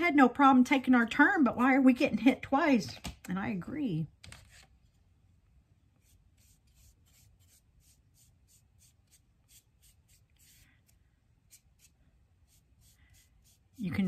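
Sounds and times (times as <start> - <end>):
paintbrush strokes on wood: 6.0 - 14.0.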